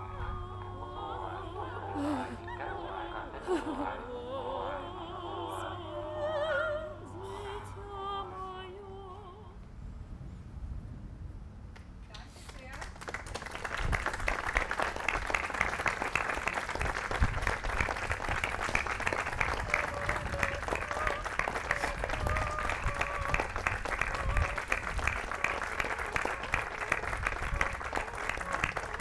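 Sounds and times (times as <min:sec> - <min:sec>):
audience applause: 0:12.5 - 0:29.0.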